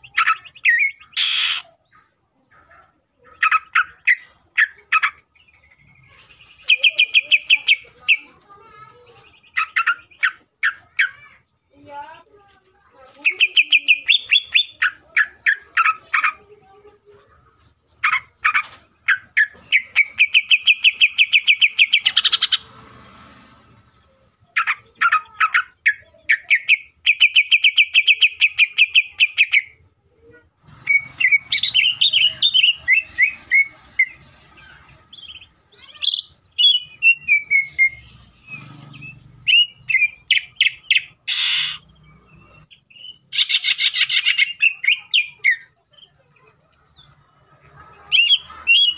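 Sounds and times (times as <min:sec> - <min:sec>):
bird singing fast trills: 0:00.0 - 0:01.7, 0:13.3 - 0:16.0, 0:24.5 - 0:29.8, 0:30.8 - 0:34.2, 0:35.1 - 0:46.2, 0:48.1 - 0:48.9
bird whistled phrases: 0:00.0 - 0:01.7, 0:13.3 - 0:16.0, 0:30.9 - 0:34.2, 0:35.1 - 0:45.7, 0:48.1 - 0:48.9.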